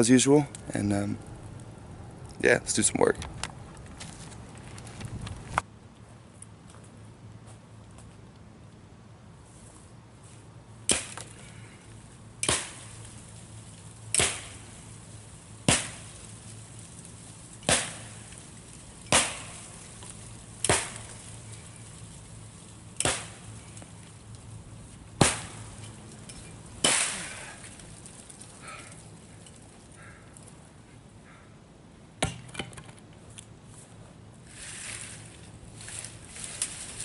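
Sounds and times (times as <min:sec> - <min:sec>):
axe chopping wood: 0:10.9 - 0:11.4, 0:12.4 - 0:13.0, 0:14.1 - 0:14.6, 0:15.6 - 0:16.1, 0:17.6 - 0:18.3, 0:19.1 - 0:19.7, 0:20.6 - 0:21.2, 0:23.0 - 0:23.6, 0:25.2 - 0:25.8, 0:26.8 - 0:27.7, 0:32.2 - 0:32.9.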